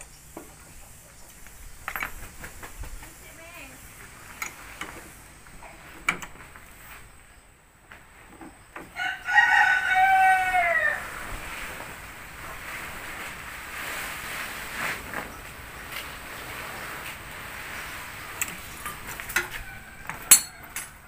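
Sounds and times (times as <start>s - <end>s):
rooster crowing: 8.9s - 11.3s, 19.3s - 21.0s.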